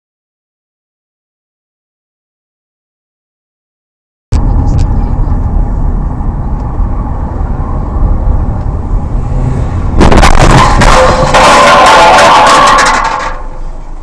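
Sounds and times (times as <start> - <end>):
car road and engine rumble: 4.3 - 14.0
harsh tonal noise: 9.6 - 14.0.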